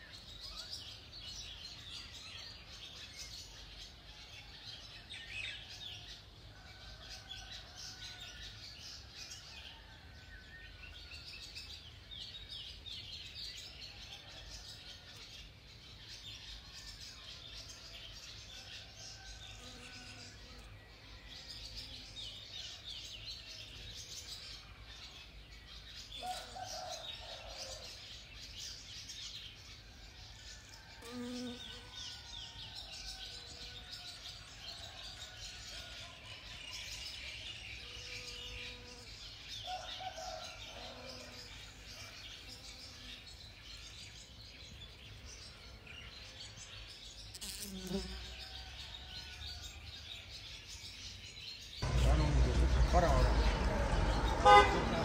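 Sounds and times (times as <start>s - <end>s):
small birds chirping: 11.0s - 55.0s.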